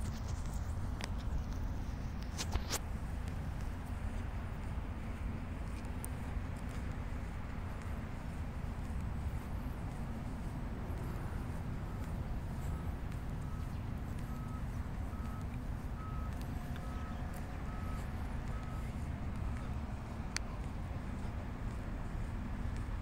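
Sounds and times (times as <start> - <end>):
vehicle reversing alarm beeping: 6.7 - 23.0.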